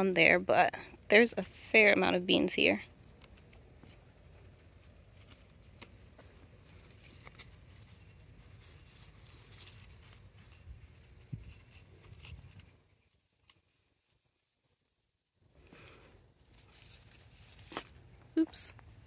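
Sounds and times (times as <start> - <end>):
leaves rustling: 2.9 - 14.6, 15.7 - 18.1
bean pods snapping: 3.0 - 3.9, 5.2 - 10.7.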